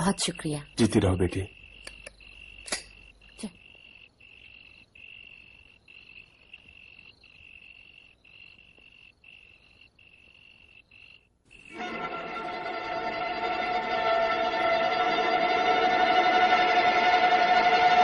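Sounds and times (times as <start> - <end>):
insect trilling: 0.0 - 11.8.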